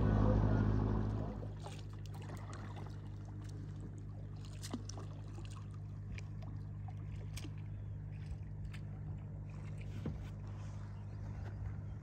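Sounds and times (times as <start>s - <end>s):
distant boat engine hum: 0.0s - 12.0s
paddle splashes and drips: 1.2s - 10.8s.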